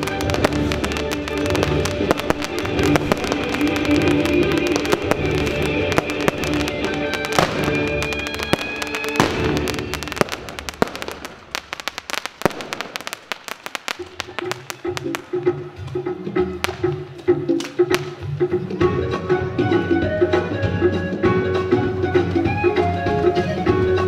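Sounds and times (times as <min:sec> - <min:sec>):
fireworks crackling and popping: 0:00.0 - 0:18.4
recorded music: 0:00.0 - 0:24.0.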